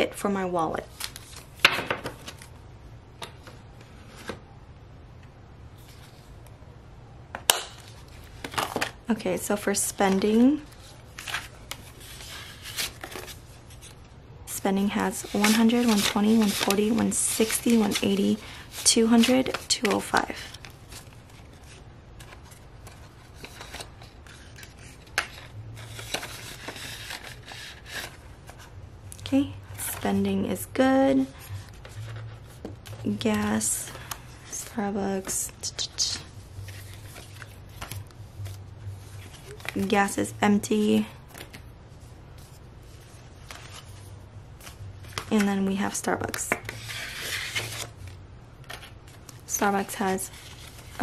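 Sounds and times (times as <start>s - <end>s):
banknotes rustling: 7.9s - 28.7s.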